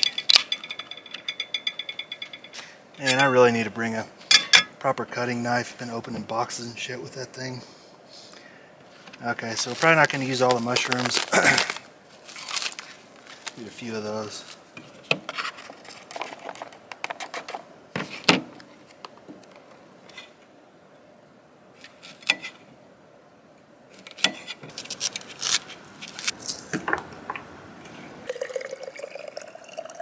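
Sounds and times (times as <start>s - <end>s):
water running into a cup: 28.2s - 30.0s.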